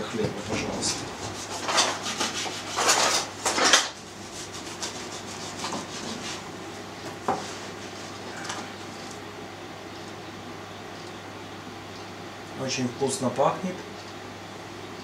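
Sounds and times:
bread knife sawing through crust: 0.8s - 3.3s, 4.1s - 6.5s.

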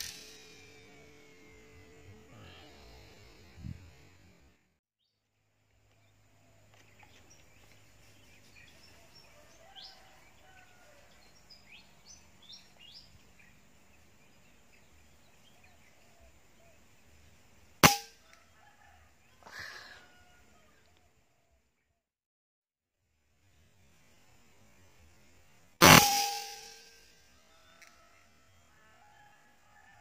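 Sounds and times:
air rifle shot: 17.8s - 18.1s, 25.8s - 26.8s.

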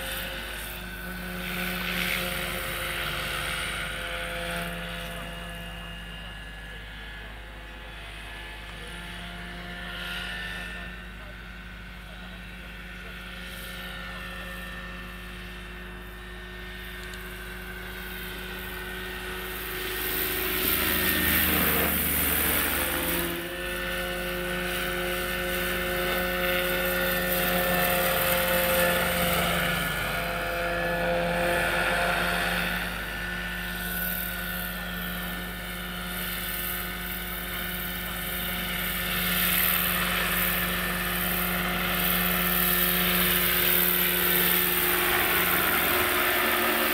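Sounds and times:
electric model helicopter whine: 0.0s - 46.9s.

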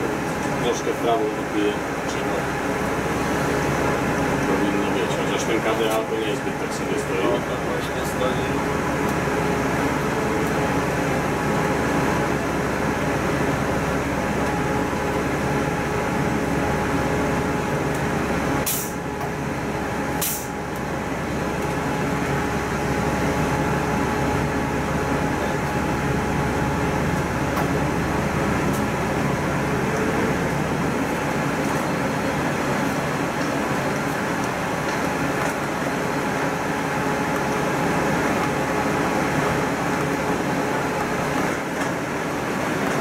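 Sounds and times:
bus engine running: 0.0s - 43.0s
road noise: 0.0s - 43.0s
short air hisses: 18.6s - 19.0s, 20.2s - 20.5s.

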